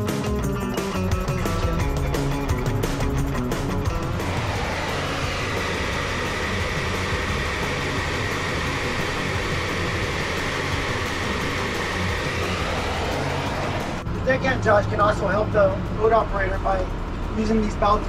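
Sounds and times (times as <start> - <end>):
boat engine and pump drone: 1.2 - 18.0.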